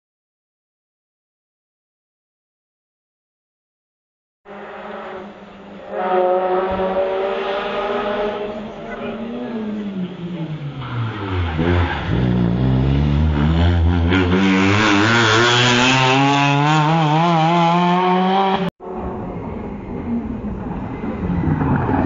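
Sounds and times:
quieter engine: 4.5s - 22.0s
rally car engine revving: 4.5s - 22.0s.

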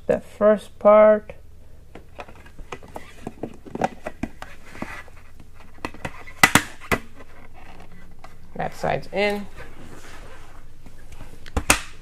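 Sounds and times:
face shield snapping into mount: 11.6s - 12.0s.

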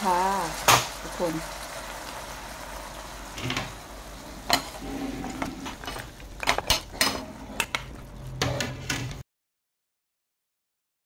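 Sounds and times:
sharp knocks on wok: 0.7s - 0.9s
metal utensils scraping a wok: 4.2s - 9.2s.

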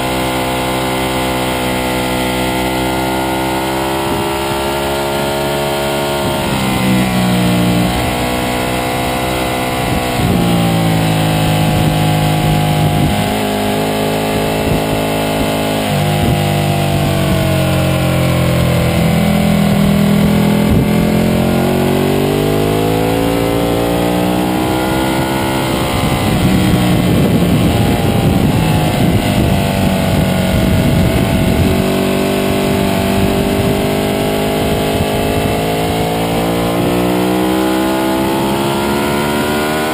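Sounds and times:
motorcycle engine revving: 0.0s - 39.9s
wind rush: 9.6s - 22.5s, 24.4s - 37.3s.

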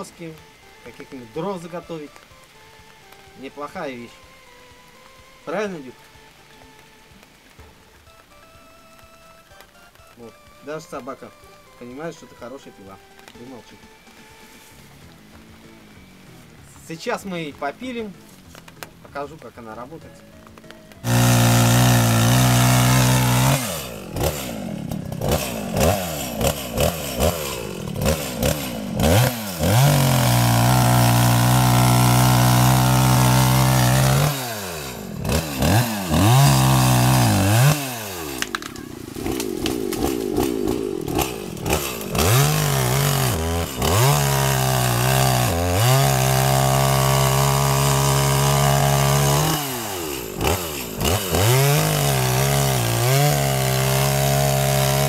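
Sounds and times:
chainsaw cutting through tree trunk: 0.0s - 19.1s, 20.4s - 55.0s.

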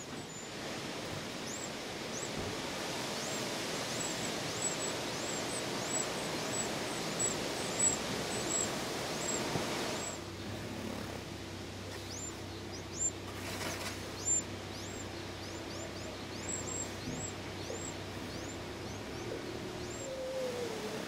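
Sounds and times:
brief rustle: 13.3s - 14.0s.

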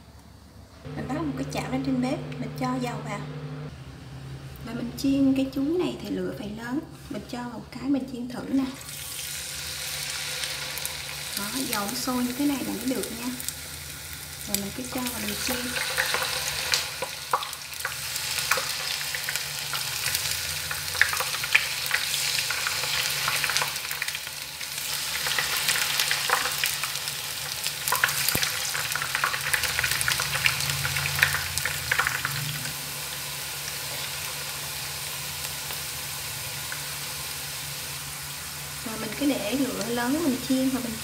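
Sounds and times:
banana slices sizzling in hot oil: 8.5s - 41.0s.

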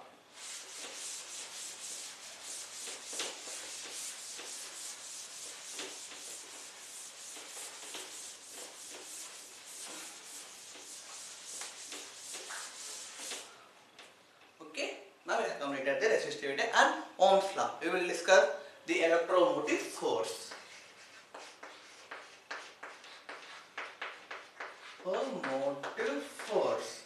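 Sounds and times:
rubbing and scratching on board: 0.4s - 13.5s, 20.5s - 26.6s.

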